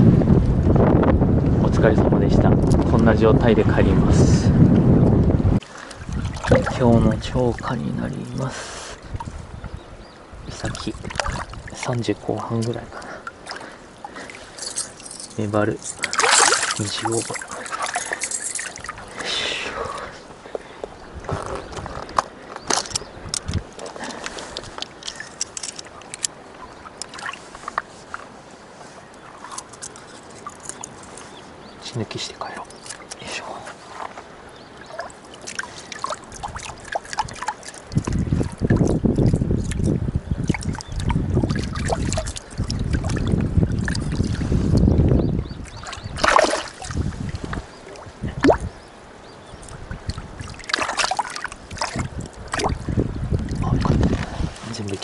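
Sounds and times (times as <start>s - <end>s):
steady wash of water: 5.4s - 9.5s, 10.2s - 20.5s, 32.9s - 55.0s
small water splashes: 5.6s - 8.4s, 10.4s - 19.6s, 20.6s - 28.3s, 32.6s - 55.0s.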